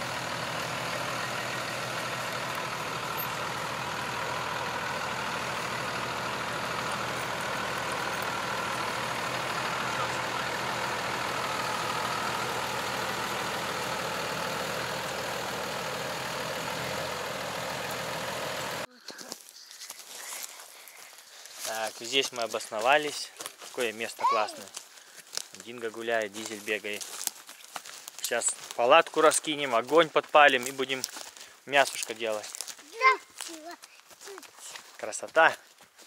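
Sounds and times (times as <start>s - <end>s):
road and wind noise: 0.0s - 18.9s
vehicle engine running: 0.0s - 18.9s.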